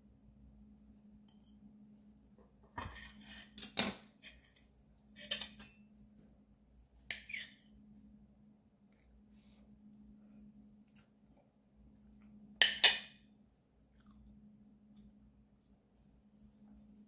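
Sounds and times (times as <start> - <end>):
faint steady hum: 0.0 - 17.0
cutlery clinking on ceramic plate: 5.2 - 5.8, 12.6 - 13.2.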